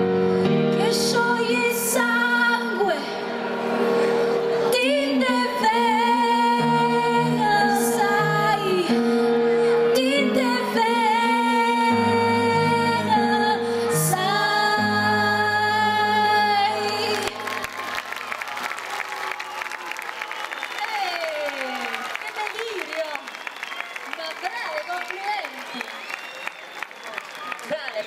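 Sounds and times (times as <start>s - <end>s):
women singing duet: 0.8s - 3.2s, 4.6s - 9.0s, 9.8s - 17.6s
applause: 16.8s - 28.0s.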